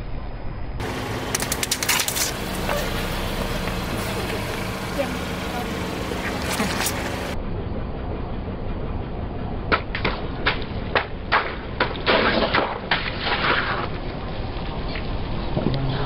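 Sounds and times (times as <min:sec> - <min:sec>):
car engine rumble: 0:00.0 - 0:16.0
splattering crackle: 0:01.2 - 0:02.9
sharp cracks and pops: 0:01.3 - 0:02.4, 0:09.7 - 0:14.0.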